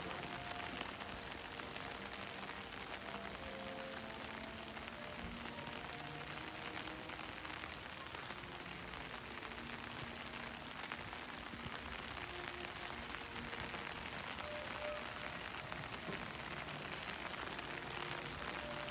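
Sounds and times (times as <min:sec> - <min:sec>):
light rain pattering: 0:00.0 - 0:18.9.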